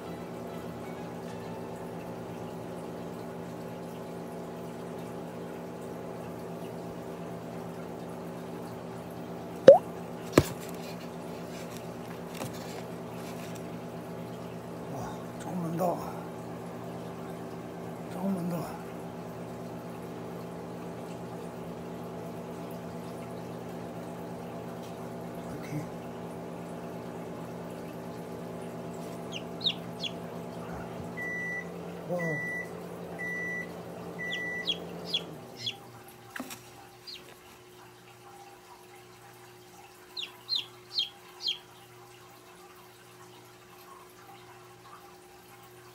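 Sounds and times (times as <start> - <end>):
incubator humming: 0.0 - 38.1, 39.8 - 41.9
steady hum: 28.8 - 36.0
chick peeping: 29.1 - 31.6, 34.2 - 35.8, 37.1 - 37.3, 40.2 - 41.6.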